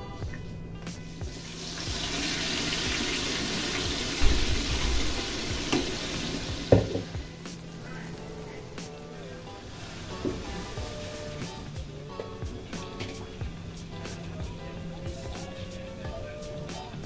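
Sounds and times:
liquid sizzling in hot pan: 1.0 - 8.6, 9.3 - 16.9
pot knocking against pan: 4.2 - 6.0, 6.6 - 7.2.

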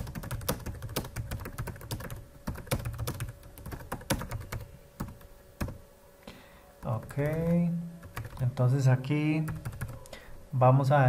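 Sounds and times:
typing on keyboard: 0.0 - 5.8, 6.8 - 8.4, 9.5 - 10.0.

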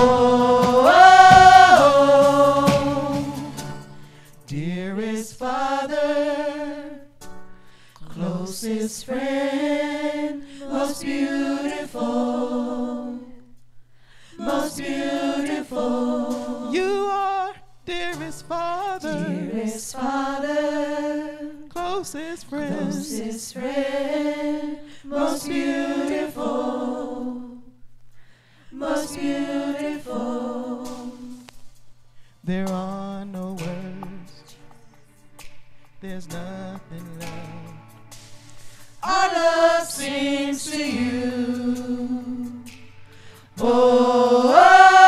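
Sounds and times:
women singing worship song: 0.0 - 3.8, 4.7 - 7.2, 8.0 - 13.6, 14.3 - 17.3, 19.0 - 21.7, 22.4 - 27.8, 28.7 - 31.5, 39.0 - 42.8, 43.4 - 45.0.

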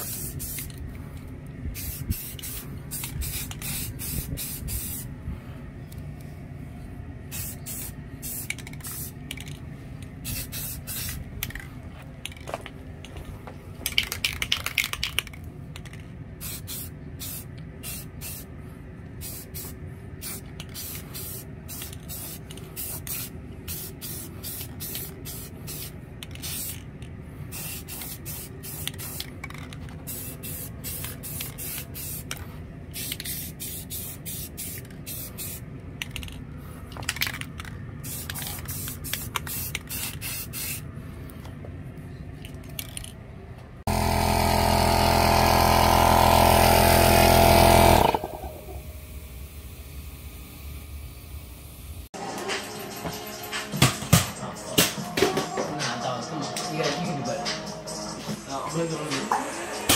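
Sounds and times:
spray can hissing bursts: 0.0 - 0.8, 1.7 - 5.1, 7.3 - 9.2, 10.2 - 11.2, 16.4 - 18.5, 19.2 - 26.8, 27.5 - 29.3, 30.0 - 35.6, 38.0 - 40.8.

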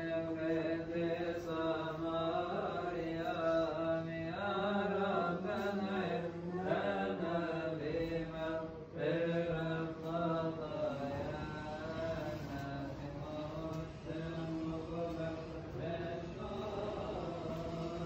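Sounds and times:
liturgical chant with held notes: 0.0 - 18.0.

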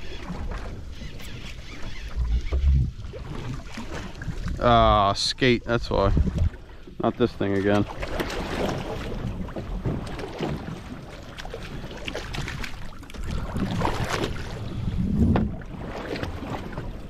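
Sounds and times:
water sloshing against a boat hull: 0.0 - 17.0
wind on the microphone: 5.7 - 6.6, 13.2 - 17.0.

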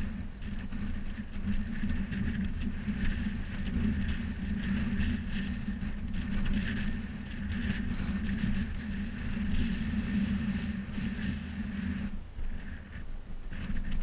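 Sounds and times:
low hum: 0.0 - 14.0
wind on microphone: 0.0 - 14.0.

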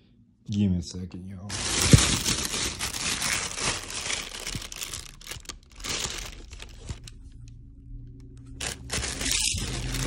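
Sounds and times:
plastic wrapping crinkling: 1.5 - 7.5, 8.5 - 10.0.

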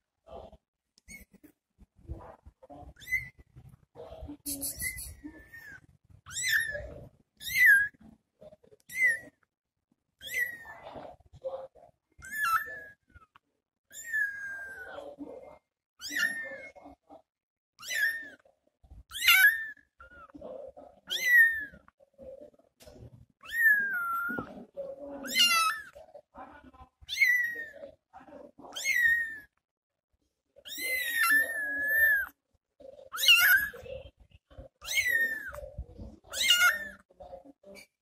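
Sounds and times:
kitten meowing: 4.5 - 8.0, 17.8 - 18.4, 21.0 - 21.8, 23.4 - 24.6, 27.1 - 27.9, 28.8 - 29.5, 30.7 - 32.4, 33.1 - 33.8, 34.8 - 35.7, 36.3 - 37.0.

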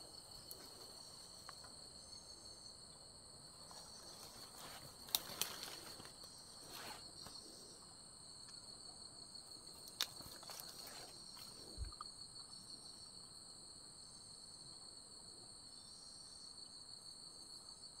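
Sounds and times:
insects chirring: 0.0 - 18.0.

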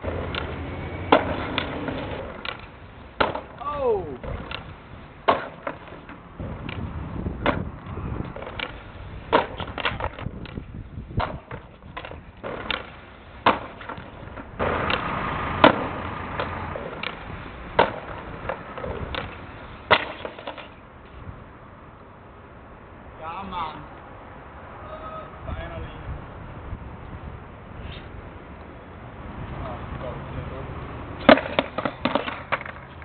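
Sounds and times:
skateboard clacking on concrete: 0.0 - 20.8, 31.2 - 33.0
skateboard wheels rolling on paving: 0.0 - 33.0.

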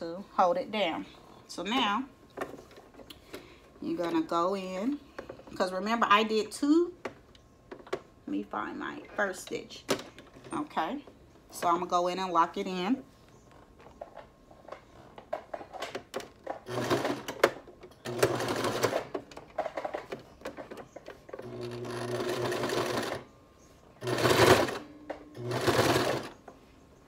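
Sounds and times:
sewing machine stitching: 16.7 - 19.1, 21.4 - 23.2, 24.0 - 24.8, 25.4 - 26.3.

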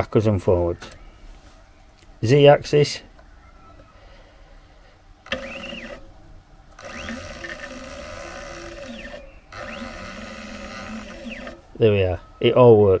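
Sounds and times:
stepper motor whine: 5.3 - 6.1, 6.7 - 11.7.

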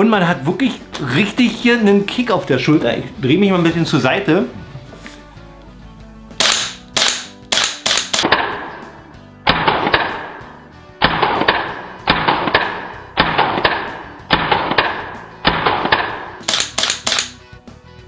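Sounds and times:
airsoft rifle shots: 6.4 - 8.9, 9.5 - 17.4.

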